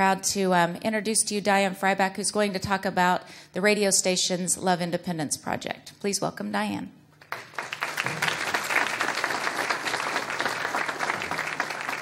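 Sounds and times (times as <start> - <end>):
audience applauding: 7.2 - 12.0.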